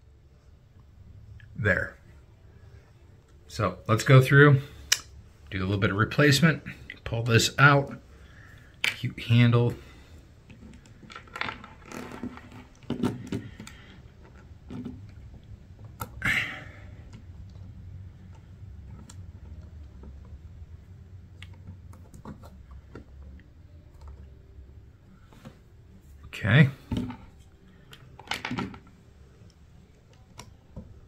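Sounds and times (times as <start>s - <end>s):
plastic pieces clicking and rattling: 10.5s - 15.2s.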